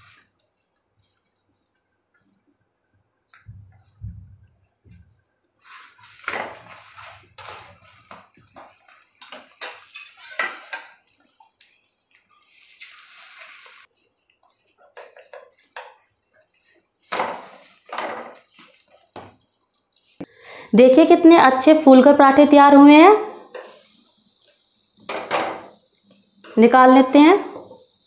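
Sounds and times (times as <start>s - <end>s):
utensils scraping a griddle: 5.6s - 19.2s.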